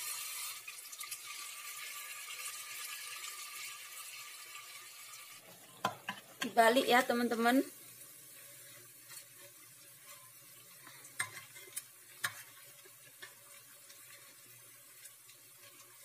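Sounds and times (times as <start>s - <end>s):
fritters sizzling in hot oil: 0.0s - 16.0s
metal spoon clinking against pot: 11.2s - 12.5s.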